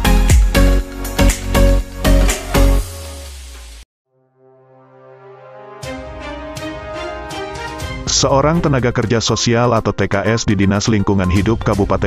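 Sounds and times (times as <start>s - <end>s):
music with bass beats: 0.0s - 3.8s.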